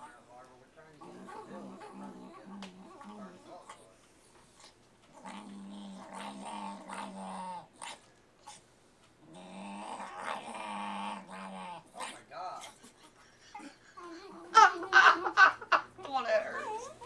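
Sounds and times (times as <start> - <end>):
small dog growling: 0.0 - 15.1, 16.4 - 17.0.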